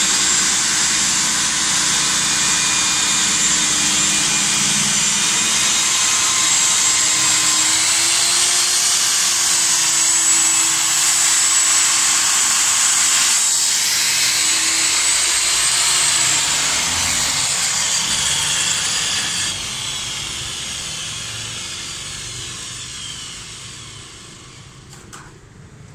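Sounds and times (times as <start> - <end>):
core drill whining: 0.0 - 25.3.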